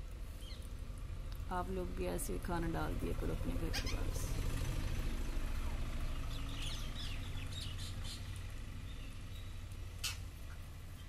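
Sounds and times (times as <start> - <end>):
steady low hum: 0.0 - 11.0
parakeets calling: 0.4 - 0.7, 3.6 - 4.6, 6.2 - 11.0.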